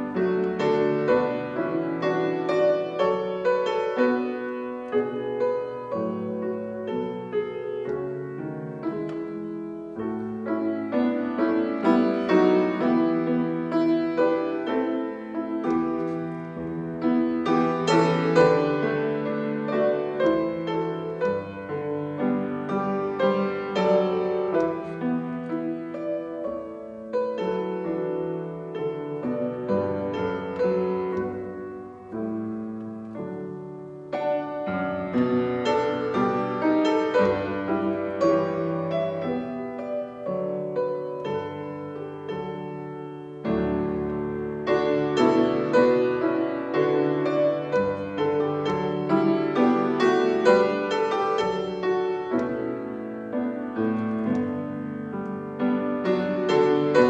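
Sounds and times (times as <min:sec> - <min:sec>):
piano piece: 0:00.0 - 0:57.0.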